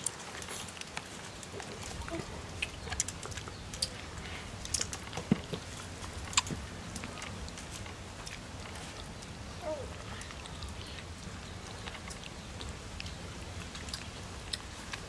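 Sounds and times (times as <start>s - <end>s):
monkey chewing and lip-smacking: 0.0s - 15.0s.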